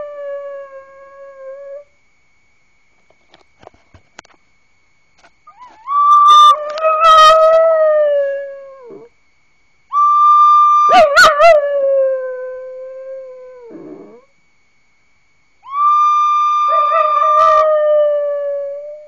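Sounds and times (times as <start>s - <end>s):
dog howling: 5.5s - 9.1s, 10.0s - 14.2s, 15.6s - 19.0s.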